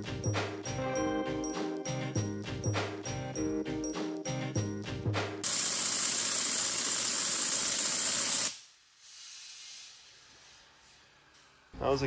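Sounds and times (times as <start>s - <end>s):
waterjet hissing: 5.4s - 8.6s
faint hiss: 8.2s - 10.6s.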